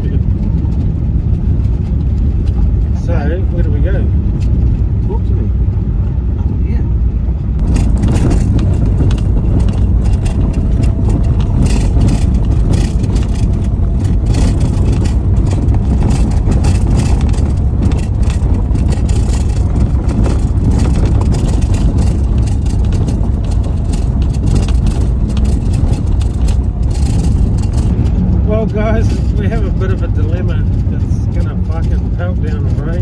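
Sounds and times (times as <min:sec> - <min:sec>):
engine and road rumble: 0:00.0 - 0:33.0
gravel crackling under tyres: 0:00.0 - 0:33.0.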